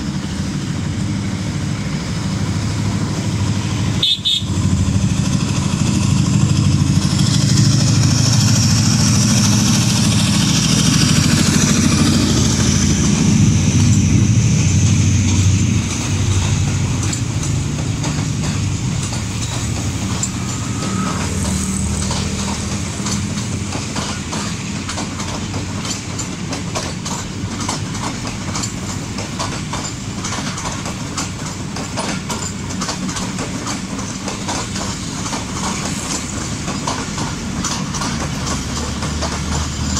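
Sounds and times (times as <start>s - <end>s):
locomotive engine drone: 0.0s - 39.9s
wheels clicking over rail joints: 4.6s - 39.9s.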